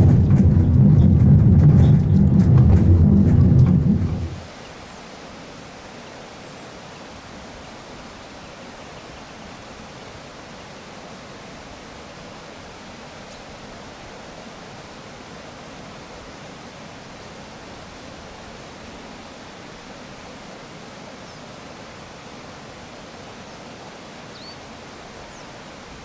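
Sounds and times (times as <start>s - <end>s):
steady rushing noise: 0.0s - 4.7s.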